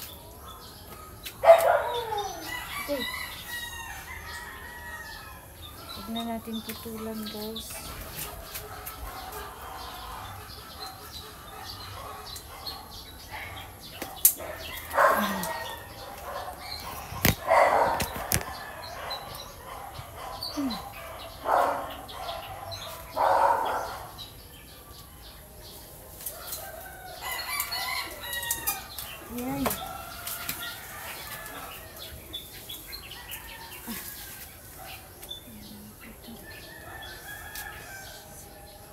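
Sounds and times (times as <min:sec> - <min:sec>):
rustling leaves: 0:00.0 - 0:38.9
chickens clucking and crowing: 0:00.2 - 0:38.9
scissors snipping branches: 0:14.0 - 0:18.6, 0:26.2 - 0:31.8.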